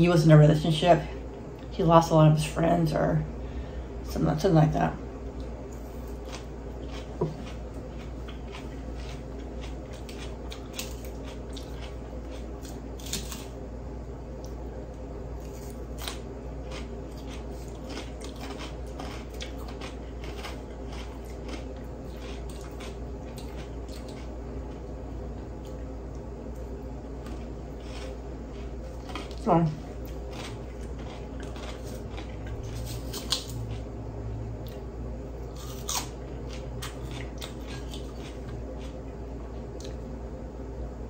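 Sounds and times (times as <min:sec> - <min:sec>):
person chewing crunchy salad: 0:05.3 - 0:13.6, 0:15.3 - 0:34.0, 0:34.6 - 0:40.0.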